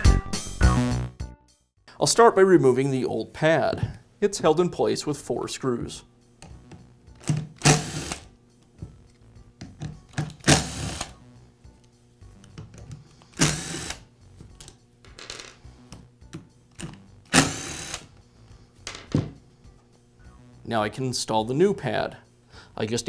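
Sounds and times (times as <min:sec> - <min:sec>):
screwdriver whirring: 0:07.2 - 0:08.3, 0:10.1 - 0:11.2, 0:12.9 - 0:14.1, 0:16.8 - 0:18.2.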